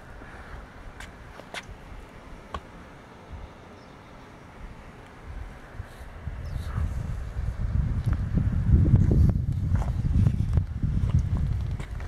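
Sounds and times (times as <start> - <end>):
footsteps on brick pavers: 0.1 - 1.8, 9.1 - 12.0
low rumble on microphone: 5.3 - 12.0.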